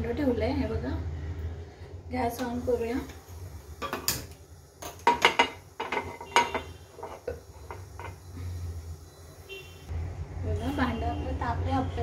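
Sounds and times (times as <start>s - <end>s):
metal pan clanking on stove: 3.8s - 8.2s.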